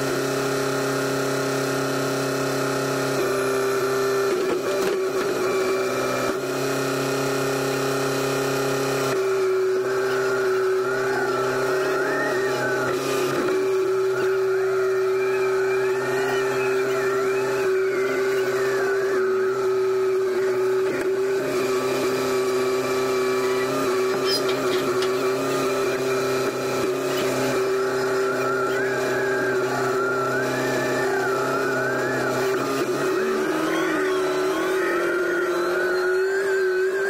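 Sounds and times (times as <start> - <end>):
telehandler engine droning: 0.0 - 37.0
high wavering whine: 9.2 - 37.0.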